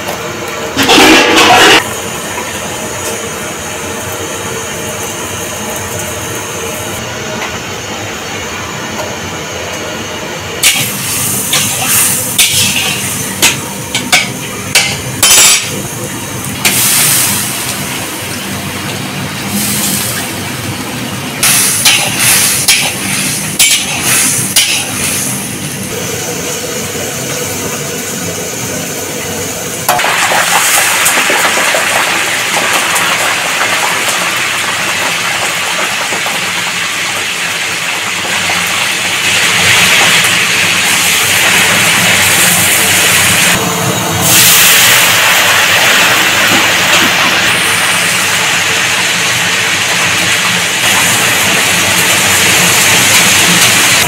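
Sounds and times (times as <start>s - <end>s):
food sizzling in hot oil: 10.6s - 26.1s, 29.9s - 43.6s, 44.2s - 54.0s.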